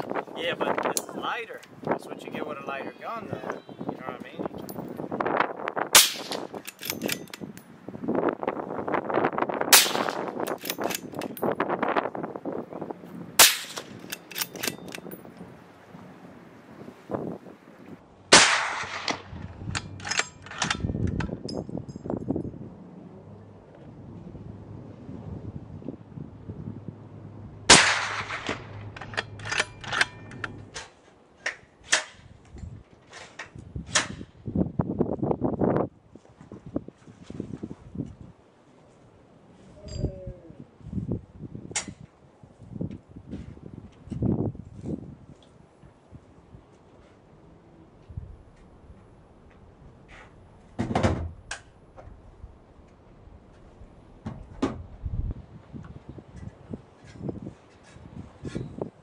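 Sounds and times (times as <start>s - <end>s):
suppressed gunshots: 6.0s - 6.5s, 9.7s - 10.3s, 13.4s - 14.5s, 18.3s - 19.4s, 27.7s - 30.6s
sharp clicks and knocks: 28.1s - 32.7s.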